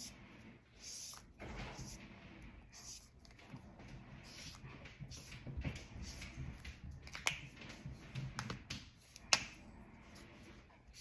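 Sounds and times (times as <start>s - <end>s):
marker clicking and tapping on table: 8.3s - 9.6s.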